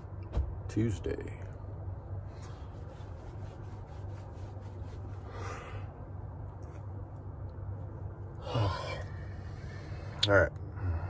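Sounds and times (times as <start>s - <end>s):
steady low hum: 0.0s - 11.0s
man yawning: 8.4s - 9.2s.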